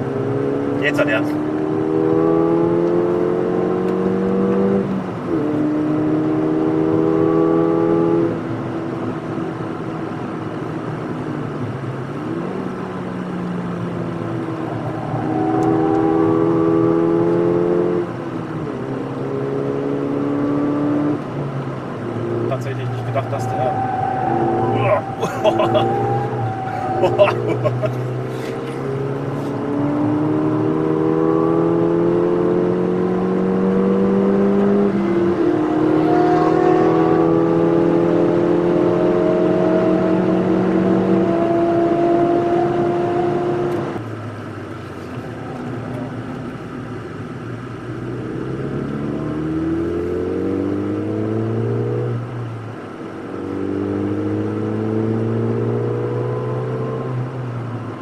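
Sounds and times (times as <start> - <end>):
car engine revving in cabin: 0.0 - 58.0.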